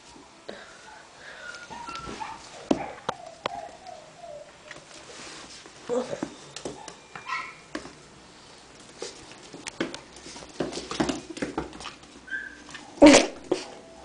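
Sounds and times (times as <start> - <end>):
puppies yipping: 1.5 - 4.5, 6.7 - 7.7, 12.2 - 13.0
puppies scrabbling on tile floor: 8.8 - 13.8
puppies whimpering: 12.3 - 12.7.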